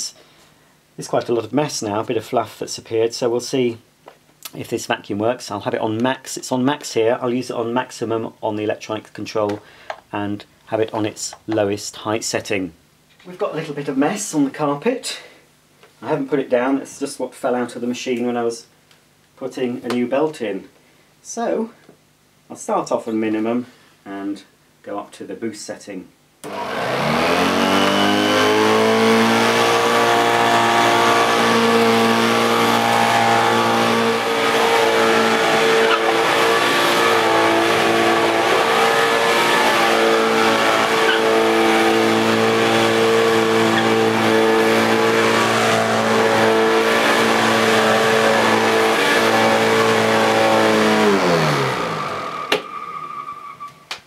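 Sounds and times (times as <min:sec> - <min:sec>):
upright vacuum cleaner running: 0:26.4 - 0:52.6.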